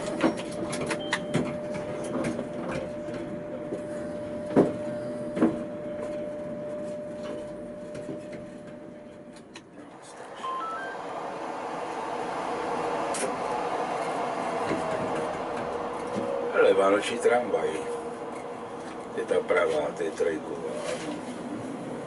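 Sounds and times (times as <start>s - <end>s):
street traffic noise: 0.0s - 22.0s
tram electrical whine: 0.0s - 22.0s
short rising beeps: 10.4s - 11.2s.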